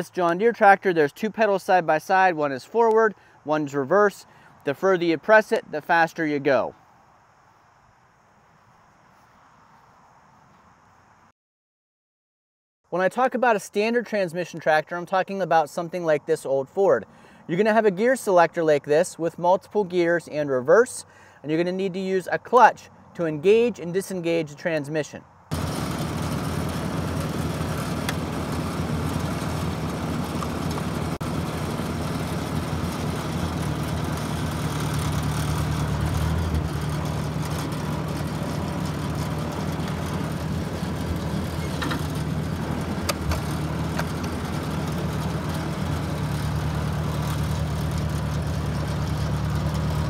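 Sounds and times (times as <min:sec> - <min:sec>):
tractor engine running: 0:25.5 - 0:50.0.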